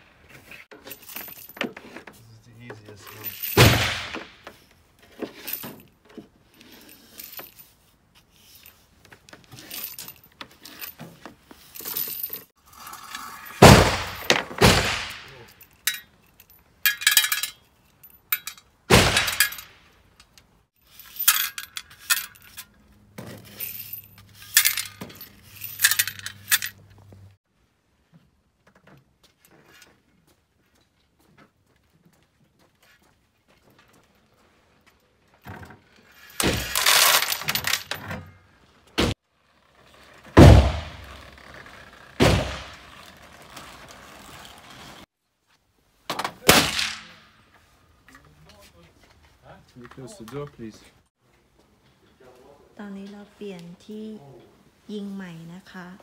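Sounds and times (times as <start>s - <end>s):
brass casings clinking: 15.0s - 20.3s, 20.9s - 22.8s, 23.4s - 26.8s.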